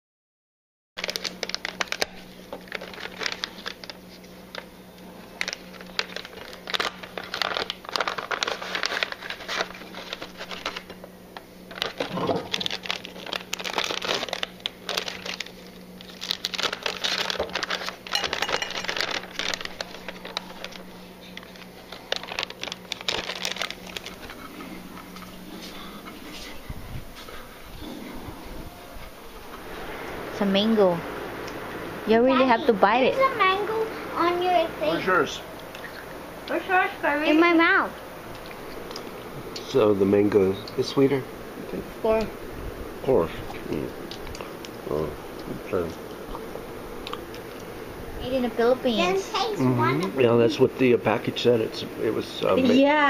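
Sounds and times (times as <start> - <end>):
snack bags crinkling: 1.0 - 26.0
steady low hum: 1.0 - 53.0.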